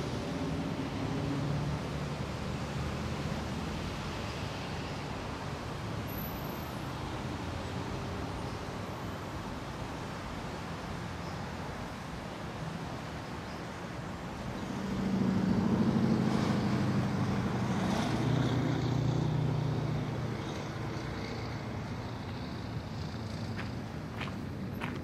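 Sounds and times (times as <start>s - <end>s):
motor vehicle passing by: 14.6s - 25.0s.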